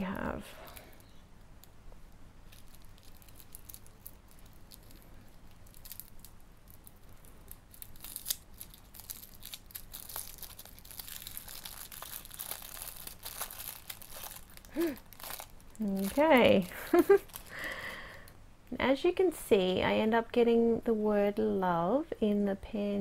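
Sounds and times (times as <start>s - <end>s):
tissue paper crinkling: 2.5s - 17.9s.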